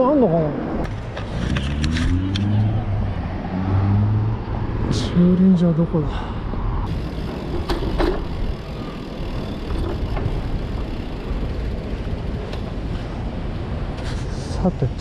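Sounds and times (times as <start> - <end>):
bike tyre noise: 6.8 - 14.6.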